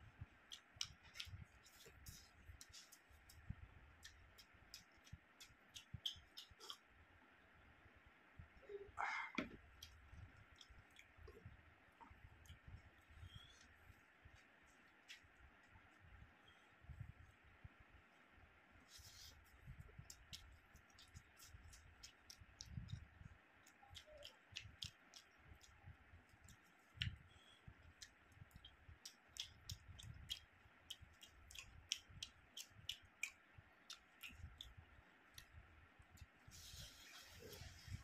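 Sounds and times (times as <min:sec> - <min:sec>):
wet chewing and smacking: 0:00.4 - 0:06.9, 0:09.6 - 0:13.8, 0:19.0 - 0:36.4.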